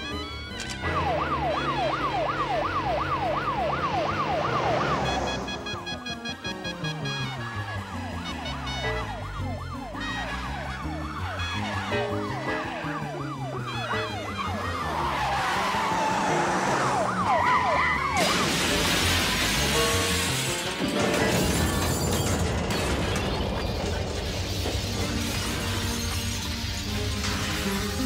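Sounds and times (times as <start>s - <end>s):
police siren yelping: 0.0s - 18.5s
film music score: 0.0s - 28.0s
crash with breaking glass: 18.2s - 28.0s.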